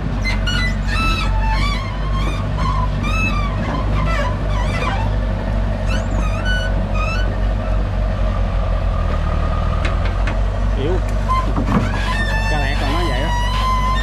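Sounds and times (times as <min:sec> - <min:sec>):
excavator diesel engine droning: 0:00.0 - 0:14.0
high wavering squeals: 0:11.3 - 0:14.0.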